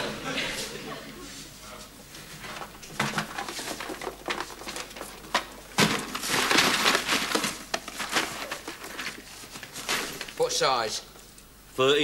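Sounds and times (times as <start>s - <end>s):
hands rummaging through cardboard box: 2.6s - 10.4s.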